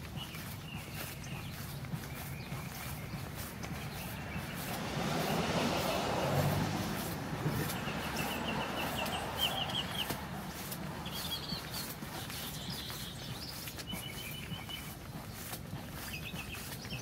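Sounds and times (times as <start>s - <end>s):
bird chirping: 0.0s - 5.9s, 7.5s - 17.0s
car passing on wet street: 2.9s - 13.4s.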